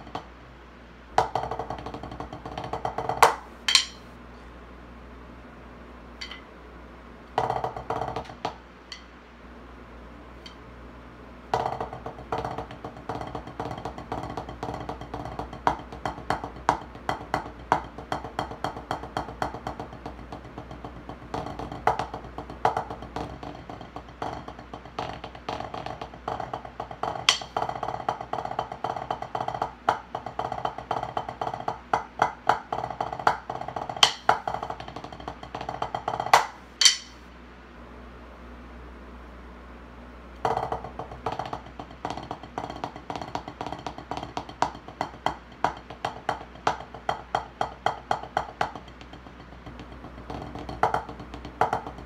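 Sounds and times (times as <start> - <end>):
drumsticks on practice pad: 1.2 - 4.2, 6.2 - 6.6, 7.4 - 9.2, 10.4 - 10.7, 11.5 - 28.0, 28.8 - 37.3.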